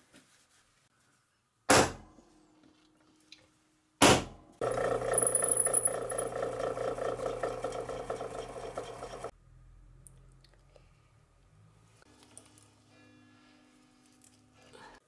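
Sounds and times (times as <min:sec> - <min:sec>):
hammer strike on metal punch: 0:01.7 - 0:02.1, 0:04.0 - 0:04.4
drill press cutting copper: 0:04.6 - 0:09.3.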